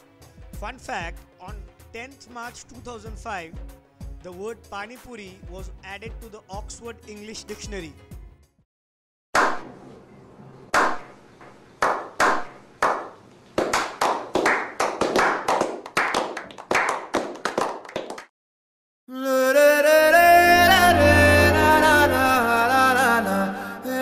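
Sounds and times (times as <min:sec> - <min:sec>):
group clapping: 0:10.7 - 0:11.1, 0:11.8 - 0:18.3.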